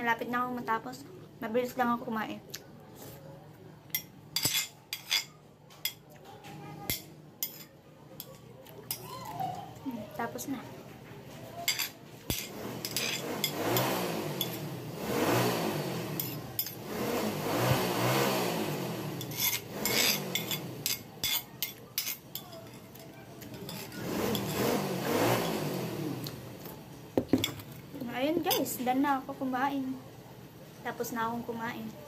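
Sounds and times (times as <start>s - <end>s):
spoon scraping ceramic plate: 4.4s - 6.0s, 6.9s - 9.0s, 11.7s - 14.6s, 19.2s - 24.8s
vehicle engine revving: 12.5s - 20.9s, 23.9s - 26.6s.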